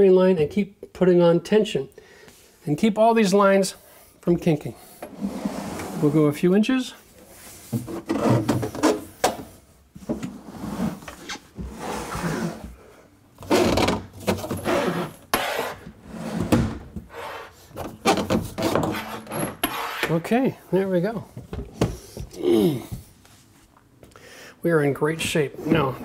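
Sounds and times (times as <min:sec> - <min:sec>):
dishwasher scraping against cabinet: 0:05.1 - 0:06.2, 0:10.2 - 0:12.7, 0:13.4 - 0:20.2.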